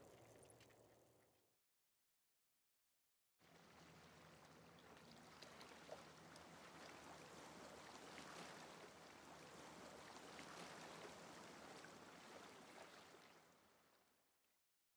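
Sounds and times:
water lapping alongside boat: 3.5s - 13.7s.

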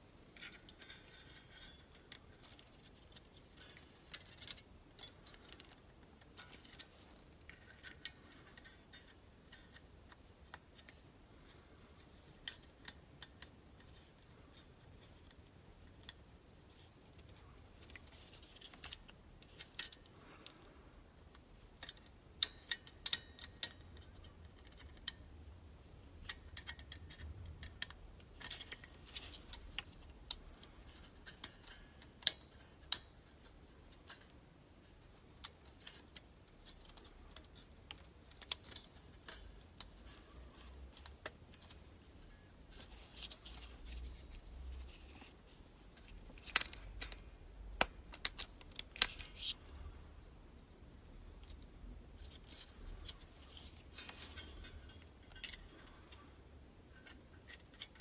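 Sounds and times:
small metal clicks and taps: 21.3s - 25.3s, 26.2s - 34.4s, 35.3s - 45.3s, 46.0s - 49.6s, 52.2s - 56.2s.

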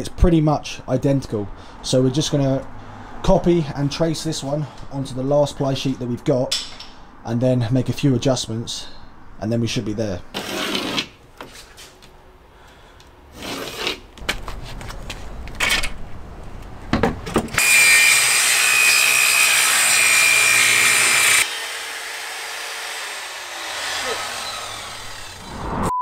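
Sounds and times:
circular saw cutting plywood: 17.6s - 25.8s.

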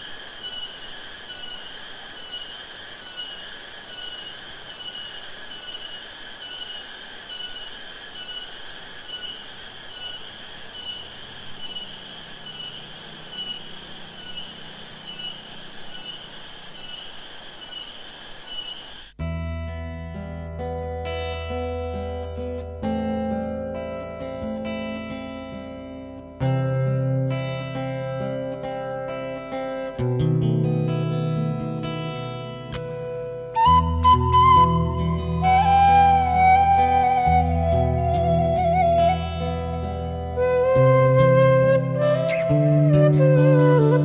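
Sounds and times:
pulsing insect chorus: 0.0s - 19.2s
acoustic guitar music: 19.2s - 44.0s.

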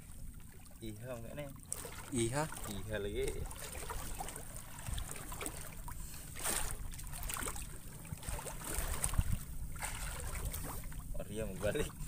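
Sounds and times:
water lapping against boat hull: 0.0s - 12.0s
wind rumble on microphone: 2.4s - 5.6s, 6.4s - 12.0s.

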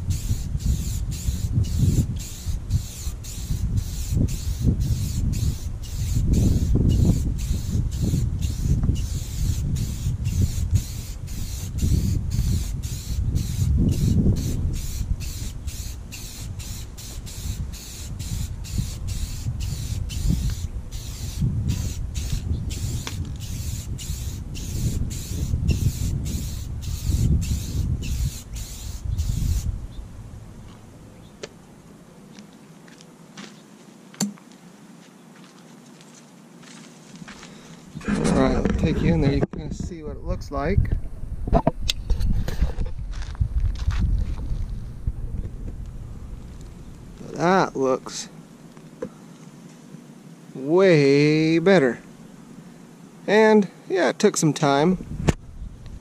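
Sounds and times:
aerosol spray hissing: 0.0s - 29.7s
wind rumble on microphone: 0.0s - 30.9s, 37.9s - 47.4s, 54.9s - 56.0s.

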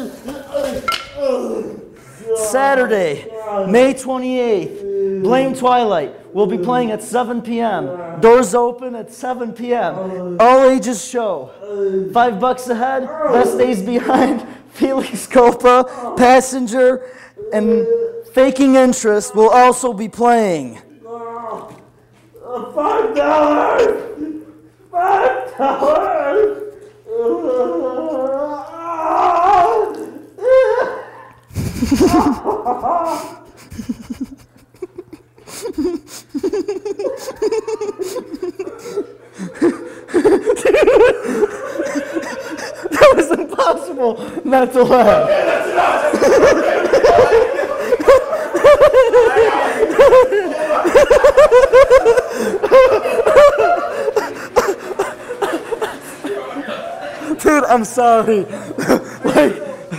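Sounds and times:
man laughing: 29.9s - 57.6s, 58.3s - 59.9s.

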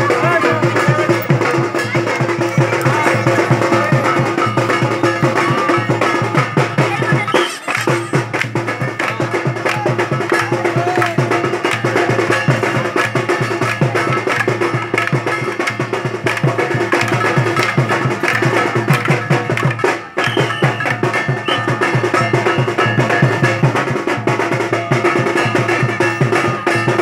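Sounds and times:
bamboo sticks clacking together: 7.4s - 21.6s.

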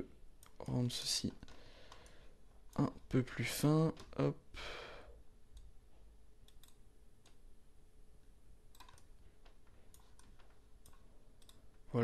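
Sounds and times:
low steady hum: 0.0s - 12.0s
computer mouse clicks: 1.4s - 2.8s, 6.4s - 7.4s, 8.7s - 11.7s.

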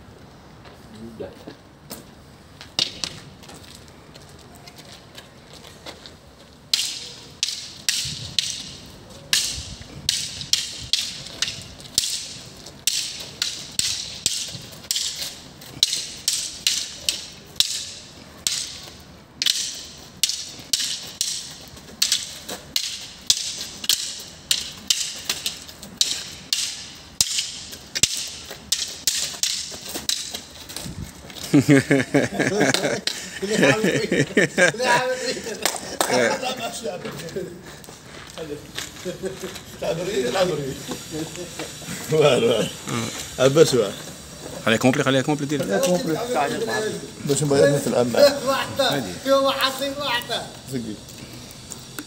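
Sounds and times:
sticks clacking together: 2.7s - 3.2s, 6.7s - 33.6s.

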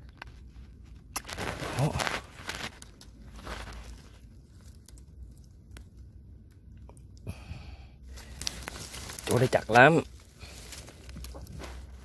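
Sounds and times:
low steady rumble: 0.0s - 12.0s
hand rustling in wet mud: 0.7s - 6.0s, 8.1s - 12.0s.

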